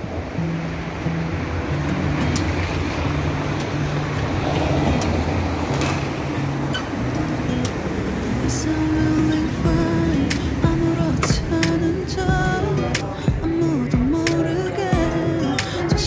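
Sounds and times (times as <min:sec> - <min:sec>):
steady rushing noise: 0:00.0 - 0:16.0
background music with bass line: 0:06.4 - 0:16.0.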